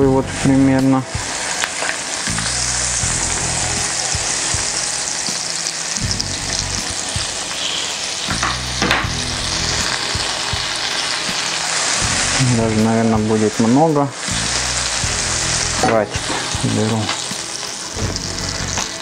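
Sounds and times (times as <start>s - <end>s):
butter sizzling in a frying pan: 0.4s - 19.0s
spatula scraping and knocking pan: 15.8s - 17.4s.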